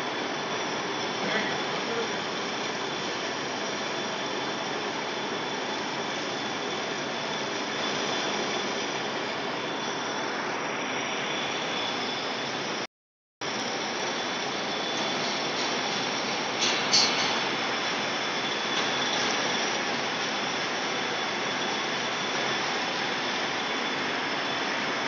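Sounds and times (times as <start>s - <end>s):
metal lathe cutting hiss: 0.0s - 12.7s, 13.5s - 25.0s
faint high steady whine: 0.0s - 25.0s.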